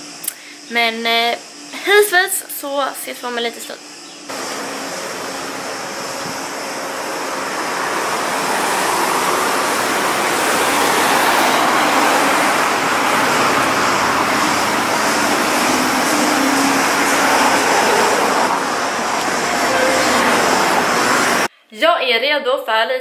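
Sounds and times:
cars driving past: 4.3 - 21.5.

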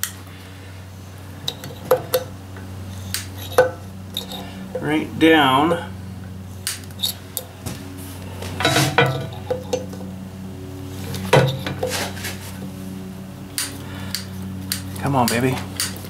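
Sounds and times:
steady low hum: 0.0 - 16.0
metal clanks: 8.6 - 10.0, 11.2 - 12.1.

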